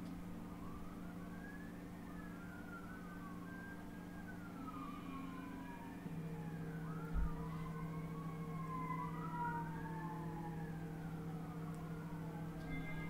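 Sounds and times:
faint siren wailing: 0.0 - 13.0
low hum: 0.0 - 13.0.

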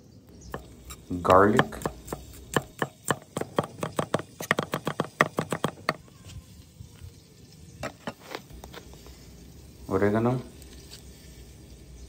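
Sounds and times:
knife chopping on wooden board: 0.5 - 6.0.

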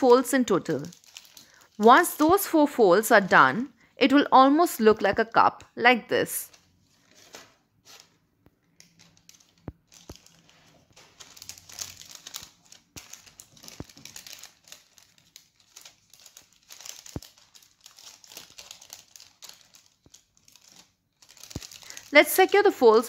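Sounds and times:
baking paper crinkling: 0.0 - 3.4, 6.4 - 23.0.

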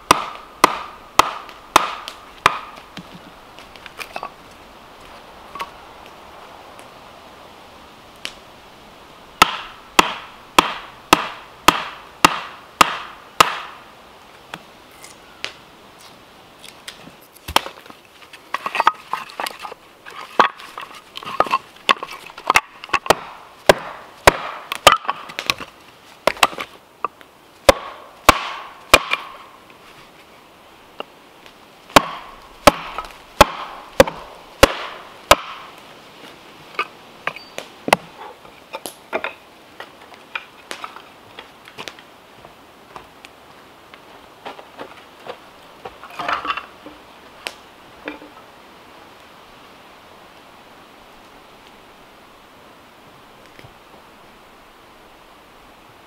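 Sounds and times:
wood cracking: 14.9 - 29.4.

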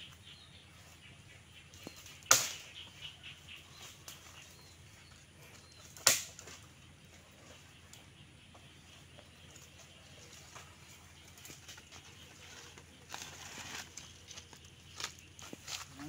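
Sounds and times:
dry branches snapping: 1.8 - 2.8, 5.8 - 6.7, 13.1 - 16.0.

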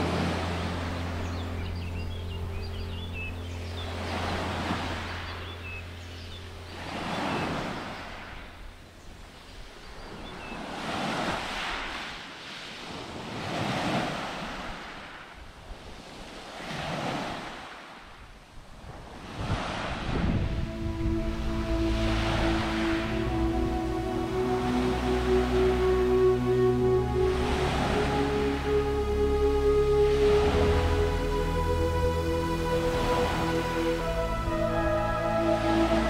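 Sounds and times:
low steady music tones: 0.0 - 10.0, 20.1 - 36.0
sea waves washing onto beach: 10.6 - 29.0.

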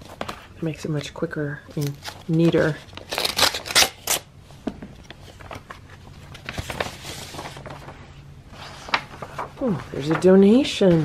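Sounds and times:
paper rustling and sliding: 5.0 - 11.0.

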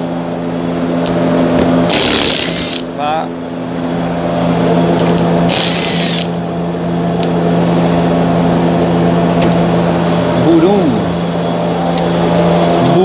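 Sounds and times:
steady low hum: 0.0 - 13.0
cordless power driver running: 1.0 - 3.1, 4.9 - 6.4.

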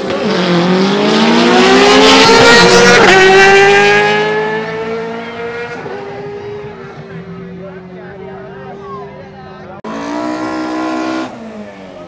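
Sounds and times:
vehicle engine accelerating: 0.0 - 8.7.

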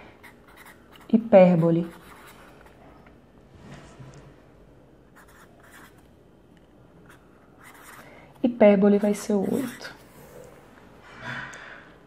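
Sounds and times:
marker scratching on paper: 0.2 - 2.4, 5.2 - 6.0, 7.1 - 8.1, 9.0 - 10.0.

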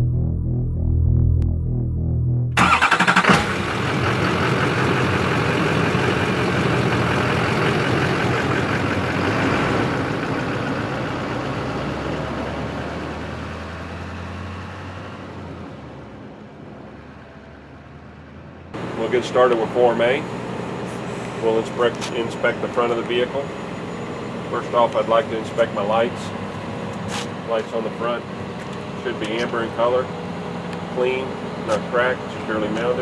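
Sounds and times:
engine cranking and running: 2.6 - 11.8.

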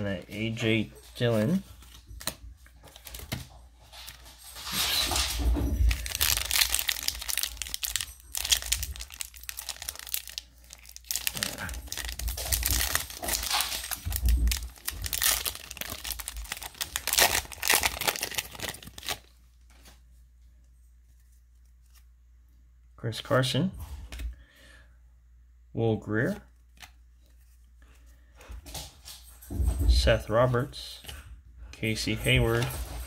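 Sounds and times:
wrapper tearing and crinkling: 5.9 - 19.3.

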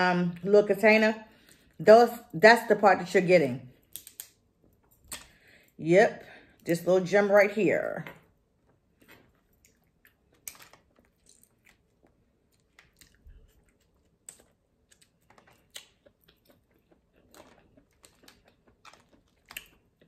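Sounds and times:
crab shell clicking and crackling: 3.9 - 4.4, 9.6 - 20.0
chewing: 8.9 - 20.0.

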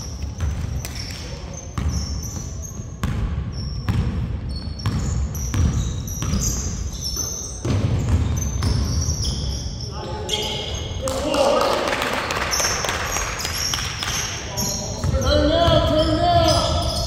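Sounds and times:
sneakers squeaking: 0.0 - 11.5, 12.2 - 17.0
basketball bouncing on wooden floor: 1.8 - 6.8, 7.6 - 9.1.

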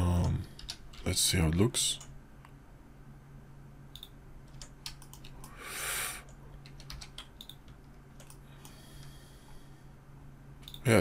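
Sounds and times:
faint steady hum: 0.0 - 11.0
keyboard and mouse clicking: 3.9 - 5.6, 6.2 - 8.8, 10.6 - 10.9.

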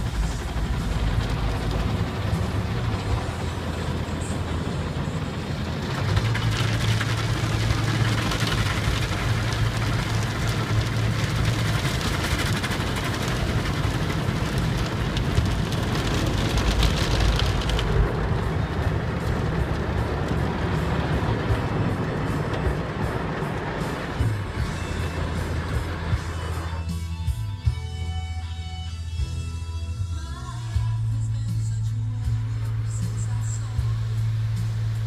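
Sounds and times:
water spraying on car: 0.0 - 27.1.

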